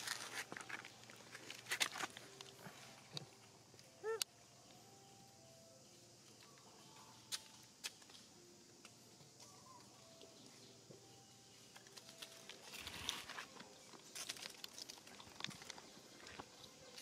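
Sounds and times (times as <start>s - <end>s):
footsteps on dry leaves: 0.0s - 2.3s.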